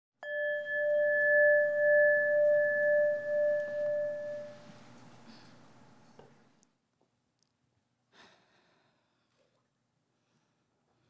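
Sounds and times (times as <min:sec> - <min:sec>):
struck bell ringing: 0:00.2 - 0:04.8.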